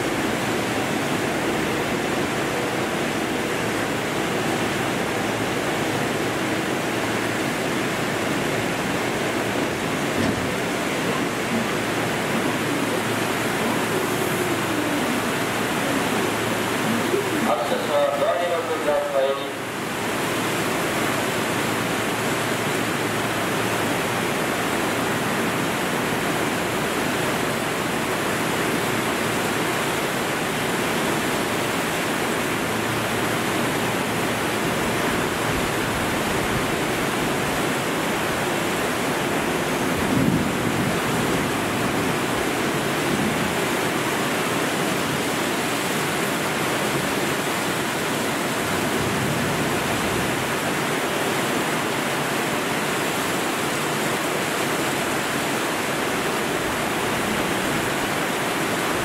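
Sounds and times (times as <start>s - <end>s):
heavy rain pouring: 0.0s - 59.0s
low thump: 10.2s - 10.5s.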